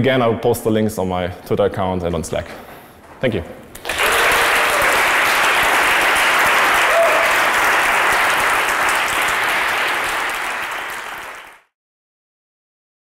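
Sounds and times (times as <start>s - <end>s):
audience applauding: 3.8s - 11.7s.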